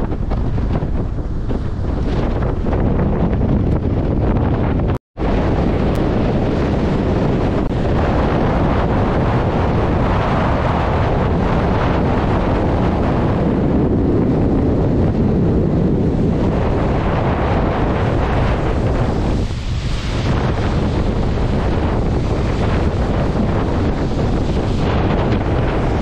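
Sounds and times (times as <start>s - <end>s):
wind buffeting microphone: 0.0s - 26.0s
waves breaking over rocks: 16.2s - 26.0s.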